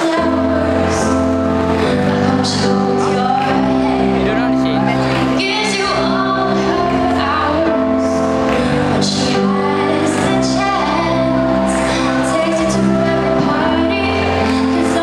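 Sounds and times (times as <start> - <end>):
woman singing into microphone: 0.0 - 4.4, 5.1 - 15.0
instrumental accompaniment: 0.0 - 15.0.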